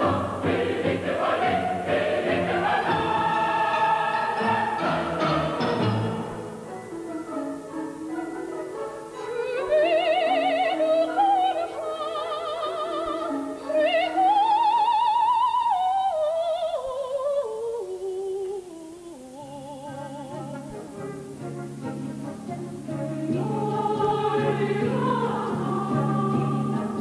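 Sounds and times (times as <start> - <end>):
soprano singing opera: 0.0 - 6.6, 9.0 - 27.0
orchestra playing: 0.0 - 9.6, 20.4 - 24.8.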